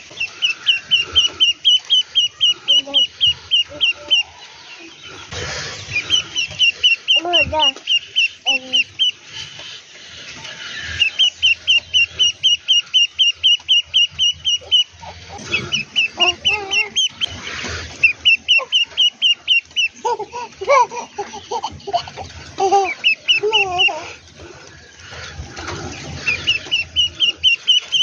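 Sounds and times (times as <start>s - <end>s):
duckling peeping: 0.0s - 28.0s
baby's voice: 7.2s - 8.9s, 16.2s - 17.0s, 20.0s - 24.2s.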